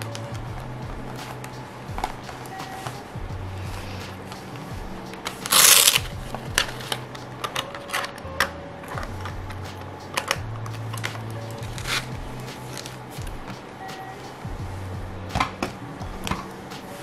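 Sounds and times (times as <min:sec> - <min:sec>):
case clicks and taps: 0:00.0 - 0:03.0, 0:15.3 - 0:16.6.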